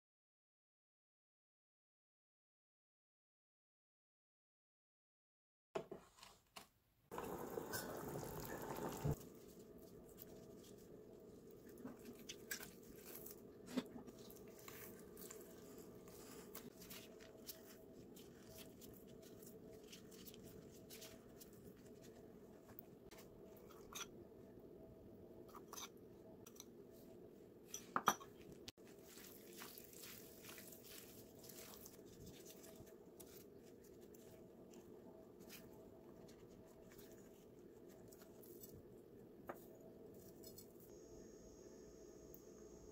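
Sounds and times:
low steady hum: 7.1s - 42.9s.

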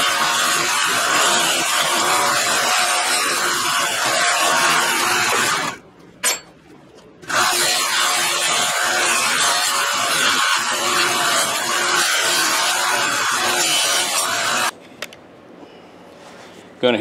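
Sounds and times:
belt sander grinding metal: 0.0s - 5.8s, 7.2s - 14.7s.

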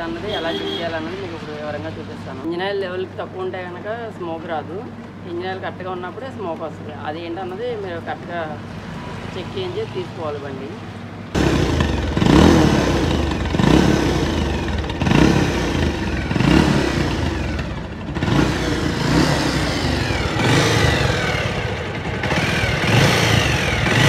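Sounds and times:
motorcycle engine revving: 11.3s - 24.0s.

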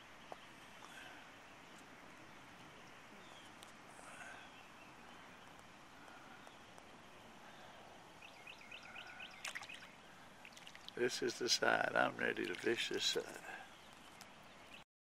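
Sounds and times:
faint bird calls: 3.1s - 14.8s.

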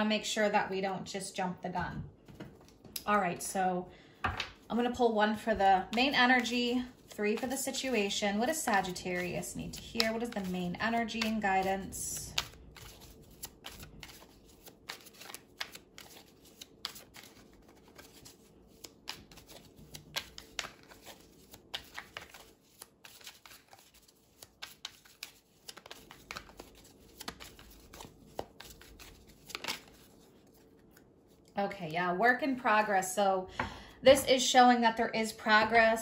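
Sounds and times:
cards being shuffled: 2.2s - 3.0s, 5.9s - 31.5s.

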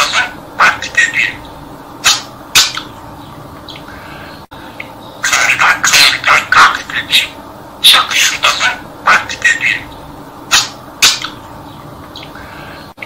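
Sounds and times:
budgerigar talking: 0.0s - 12.9s.

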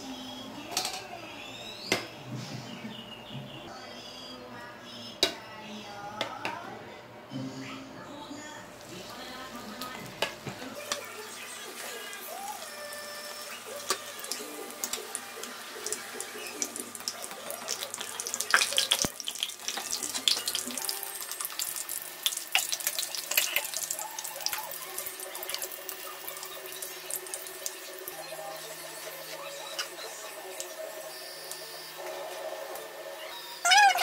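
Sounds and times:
food sizzling in hot oil: 9.8s - 33.0s.

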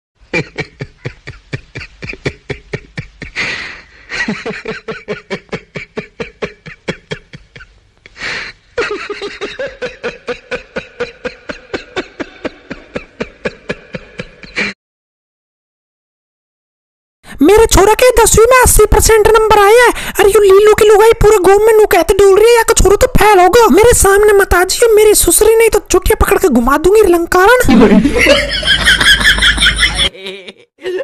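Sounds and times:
rapid rhythmic laughter: 0.3s - 7.8s, 27.7s - 31.0s.

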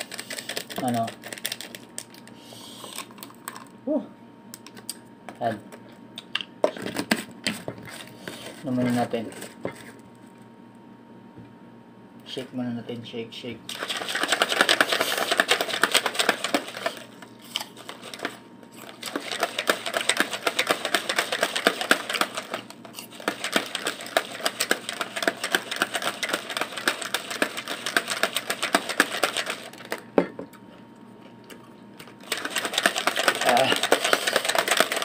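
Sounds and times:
plastic shaker bottle rattling: 0.0s - 2.3s, 13.7s - 17.2s, 17.8s - 30.0s, 32.2s - 35.0s.

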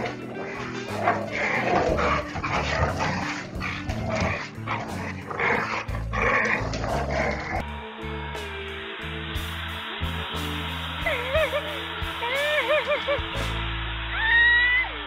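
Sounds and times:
dogs barking and yipping: 0.0s - 7.6s
background music with bass line: 0.0s - 15.0s.

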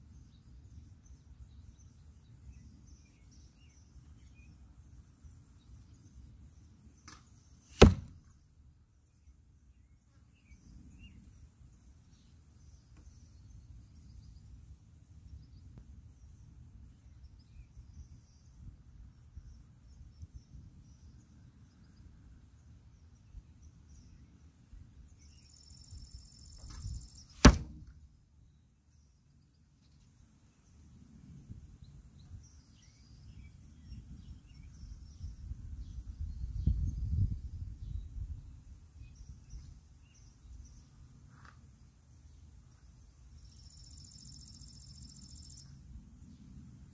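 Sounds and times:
bow string snap: 7.0s - 8.2s, 26.7s - 28.0s
low wind rumble on microphone: 30.9s - 40.8s.

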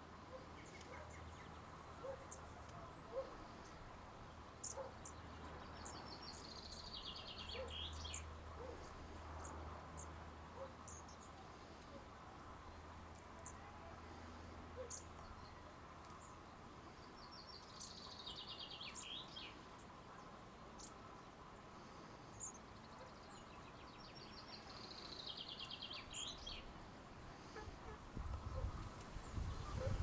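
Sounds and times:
songbird singing: 0.0s - 30.0s.

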